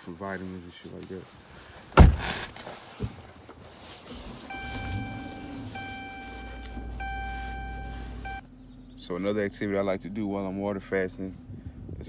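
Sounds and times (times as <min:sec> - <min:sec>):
sharp thump: 0:02.0 - 0:02.4
car warning chime: 0:04.5 - 0:08.4.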